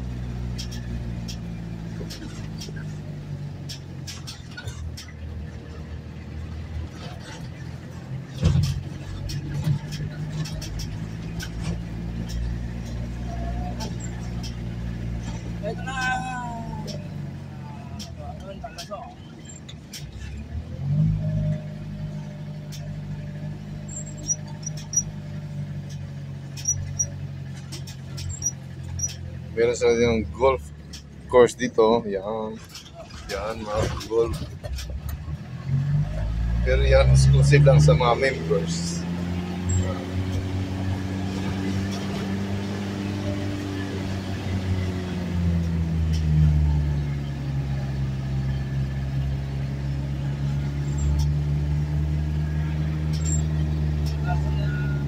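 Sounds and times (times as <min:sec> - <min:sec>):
vehicle engine running: 0:00.0 - 0:55.0
high chirps or squeaks: 0:23.8 - 0:25.2, 0:26.5 - 0:27.2, 0:27.9 - 0:29.2, 0:53.1 - 0:53.6.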